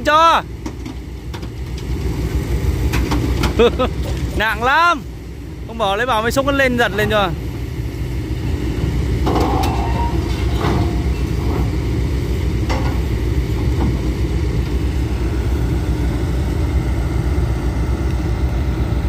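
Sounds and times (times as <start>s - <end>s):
diesel engine idling: 0.0s - 19.0s
metal loading ramps clanking: 9.2s - 14.0s.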